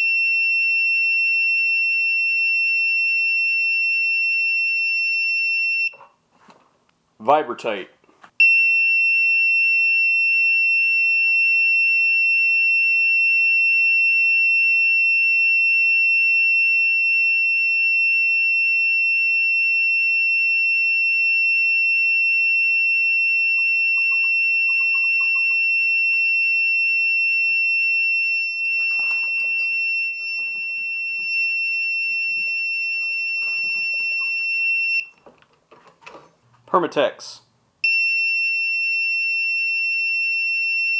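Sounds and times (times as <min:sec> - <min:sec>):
continuous high-pitched beep: 0:08.4 - 0:35.1, 0:37.8 - 0:40.9.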